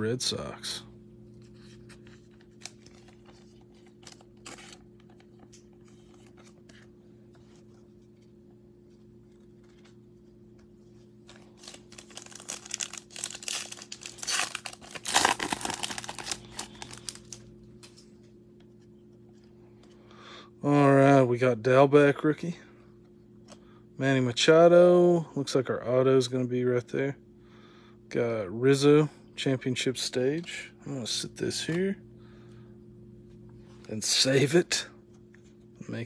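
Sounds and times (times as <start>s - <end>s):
steady low hum: 0.0s - 36.0s
foil wrapper crinkling: 11.2s - 18.0s.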